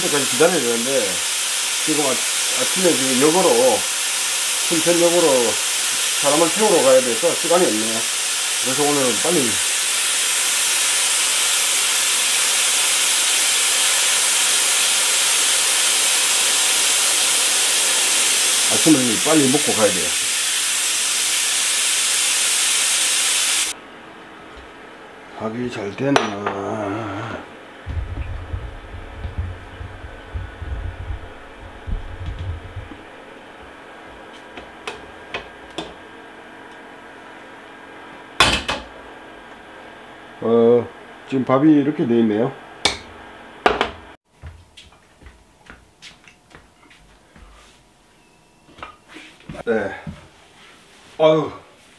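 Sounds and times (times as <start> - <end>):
pressure cooker steam hissing: 0.0 - 23.8, 27.9 - 33.0
handling thumps: 27.9 - 33.1.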